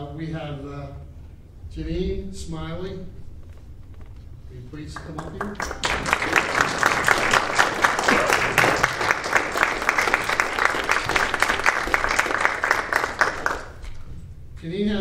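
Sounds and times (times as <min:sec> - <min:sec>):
audience applauding: 0:05.0 - 0:14.0.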